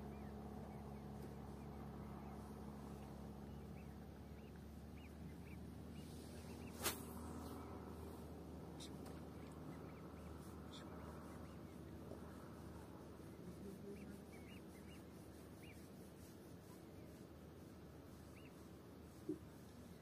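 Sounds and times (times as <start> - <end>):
low wind rumble: 0.0 - 14.9.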